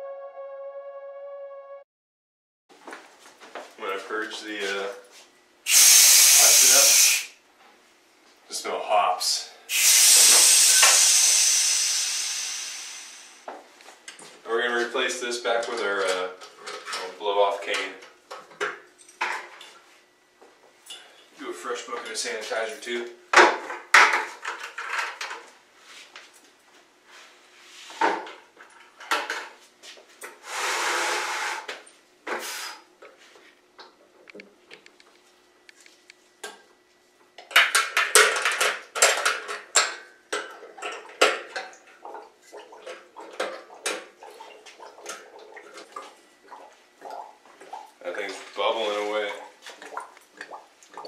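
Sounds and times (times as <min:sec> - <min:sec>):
short hissing rush: 0:05.7 - 0:07.4, 0:09.7 - 0:13.4.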